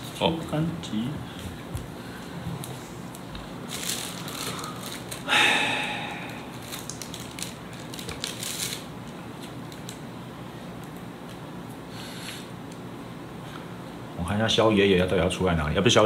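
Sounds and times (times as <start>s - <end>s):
cards crinkling: 2.6s - 5.3s, 6.2s - 10.1s
playing cards rustling and clicking: 6.6s - 10.0s.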